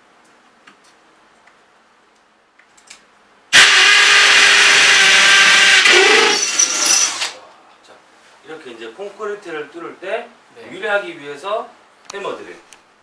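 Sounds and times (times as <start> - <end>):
hammer drill boring into concrete: 3.5 - 7.4.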